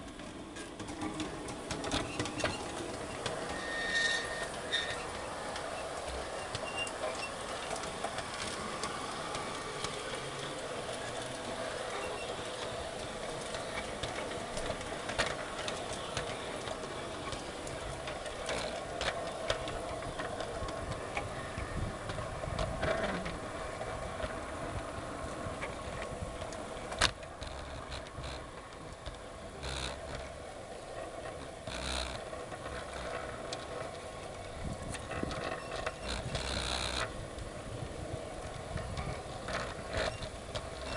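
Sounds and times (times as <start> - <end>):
model train motor hum: 0.0 - 40.9
wheels clicking over rail joints: 0.0 - 40.9.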